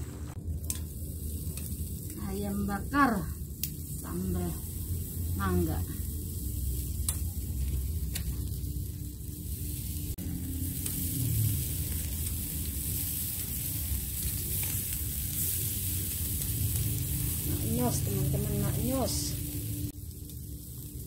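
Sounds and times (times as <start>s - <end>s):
chicken sizzling on grill: 0.3s - 21.0s
metal tongs clicking on grill: 0.6s - 0.9s, 1.5s - 1.8s, 7.0s - 7.3s.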